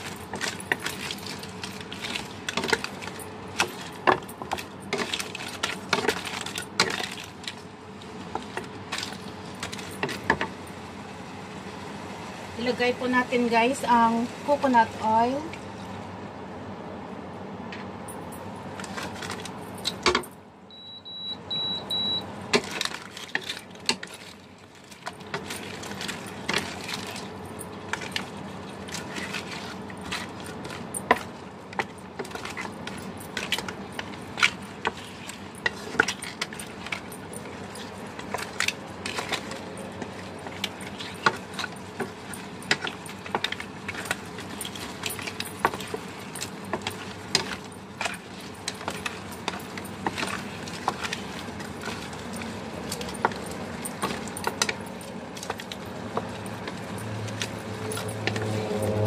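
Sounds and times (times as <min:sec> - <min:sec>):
short high beeps: 0:20.7 - 0:22.2.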